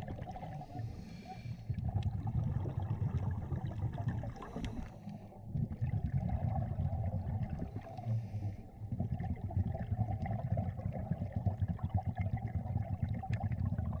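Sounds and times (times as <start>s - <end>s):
low underwater rumble: 0.0s - 14.0s
faint crackling and ticking: 0.1s - 6.2s.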